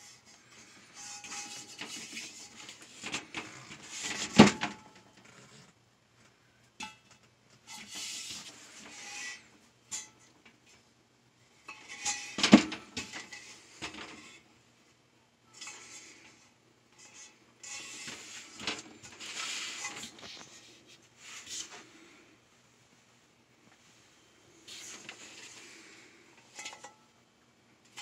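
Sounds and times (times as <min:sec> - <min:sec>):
metal pan scraping on surface: 0:17.0 - 0:20.7.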